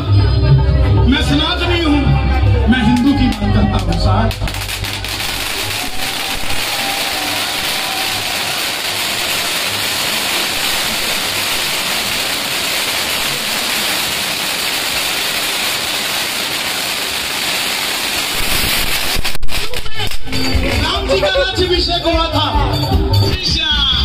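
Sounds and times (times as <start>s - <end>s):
loud steady hiss: 4.3s - 20.3s.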